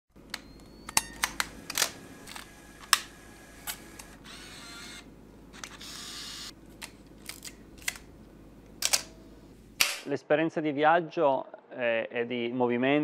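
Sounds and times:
camera whirring: 0.2s - 9.2s
camera shutter clicks: 0.9s - 6.5s.

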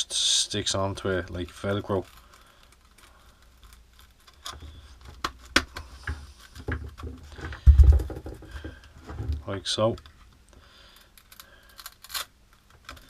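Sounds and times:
handling noise of plastic sander: 1.0s - 10.4s.

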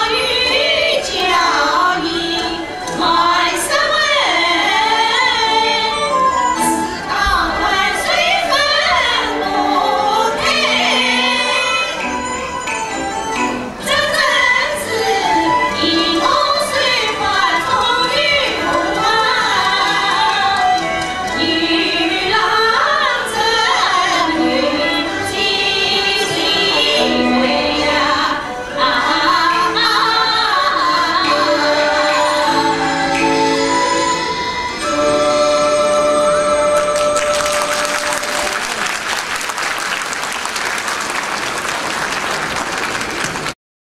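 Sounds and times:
women singing opera: 0.0s - 12.1s, 13.8s - 38.3s
instrumental accompaniment: 0.0s - 43.4s
audience applauding: 36.8s - 43.6s.

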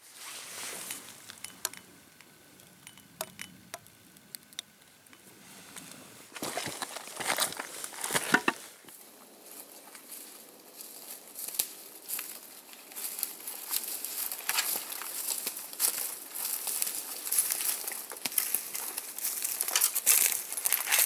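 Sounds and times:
boots crunching on river stones: 6.3s - 8.8s.

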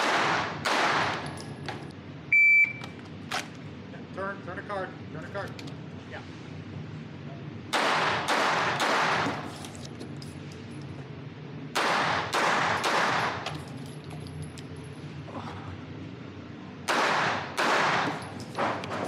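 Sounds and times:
pistol shots echoing indoors: 0.0s - 1.3s, 7.7s - 9.4s, 11.7s - 13.6s, 16.8s - 18.8s.

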